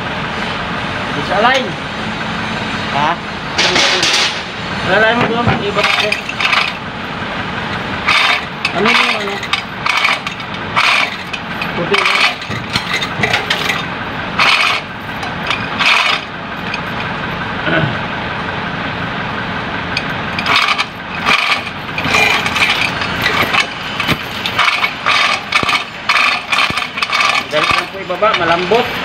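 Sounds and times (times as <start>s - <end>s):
metal chain clinking and clanking: 5.4s - 6.8s, 7.7s - 17.5s, 20.0s - 29.0s.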